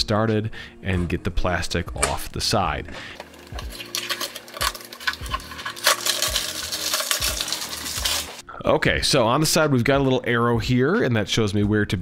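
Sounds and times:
plastic wrap crinkling: 3.2 - 8.4.

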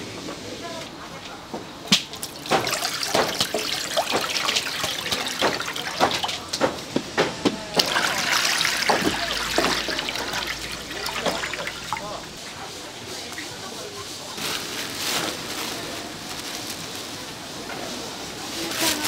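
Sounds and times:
utensils clattering: 2.1 - 6.8, 7.8 - 12.4
steady watery hiss: 2.1 - 7.2, 7.8 - 19.0.

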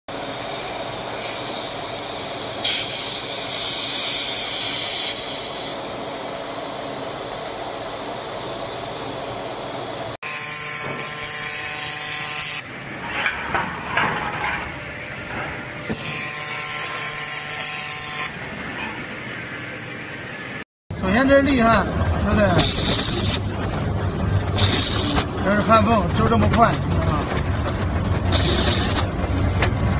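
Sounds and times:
laser welder hissing: 0.1 - 10.2, 22.6 - 23.5, 24.5 - 25.3, 28.3 - 29.1
welding spurts: 22.6 - 29.4.

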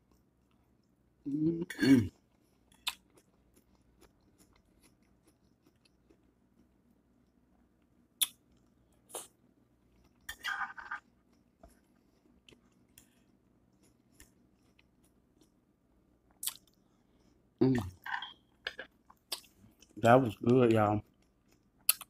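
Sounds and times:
person chewing: 0.0 - 6.8, 7.7 - 15.6, 16.2 - 22.0
person humming: 1.3 - 2.1.

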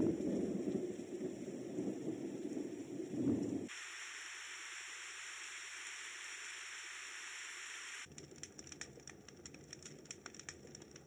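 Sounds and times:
rain-like crackles and patters: 0.0 - 11.0
white noise machine hiss: 3.7 - 8.1.

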